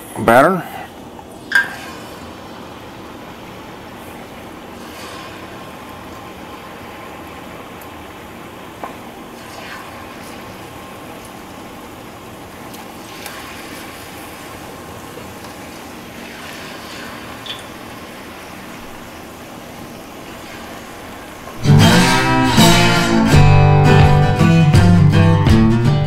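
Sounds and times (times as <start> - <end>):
loud sizzle: 1.0 - 26.0
fish deep-frying in oil: 1.4 - 21.6.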